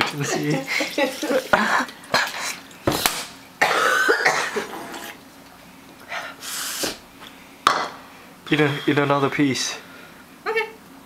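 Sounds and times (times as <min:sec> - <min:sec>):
woman coughing: 0:03.6 - 0:04.8.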